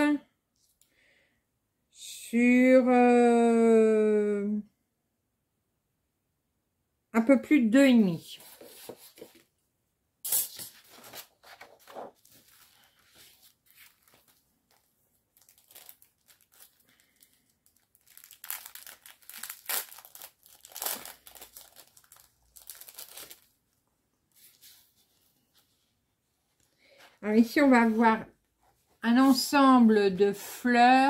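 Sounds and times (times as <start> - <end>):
packaging crinkling: 10.6 - 24.8.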